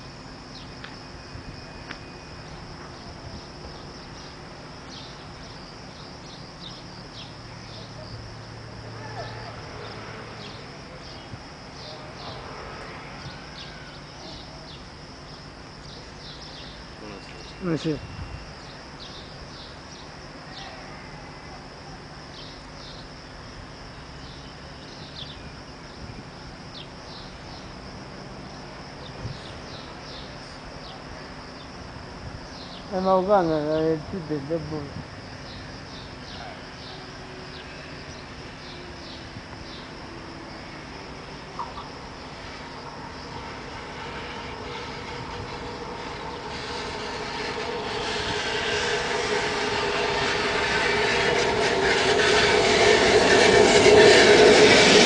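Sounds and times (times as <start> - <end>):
crickets chirring: 0.0 - 55.0
low background rumble: 41.1 - 55.0
high falling chirps: 41.6 - 55.0.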